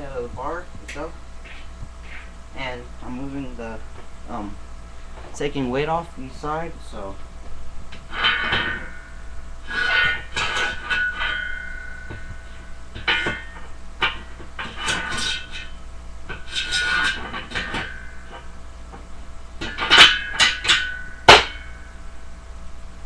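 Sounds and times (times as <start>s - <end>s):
weight plates clanking: 8.1s - 18.6s, 19.6s - 22.0s.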